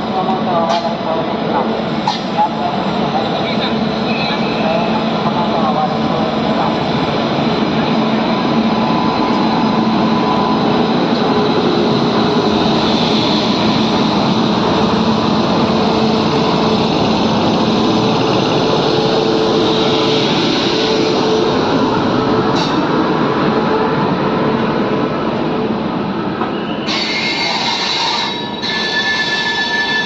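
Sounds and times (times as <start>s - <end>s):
electric locomotive humming and whining: 0.0s - 30.0s.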